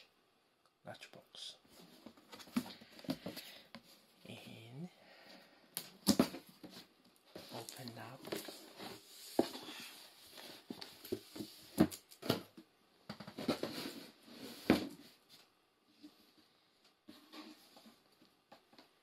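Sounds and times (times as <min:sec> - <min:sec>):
cardboard and paper rustling: 0:06.0 - 0:12.5, 0:13.2 - 0:15.4.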